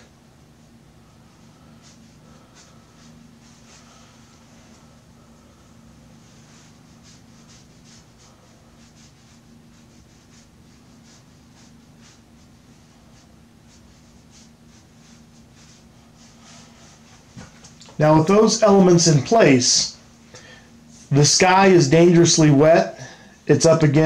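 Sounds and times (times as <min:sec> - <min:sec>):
steady low hum: 0:00.0 - 0:24.0
brush strokes on paper: 0:00.5 - 0:17.7.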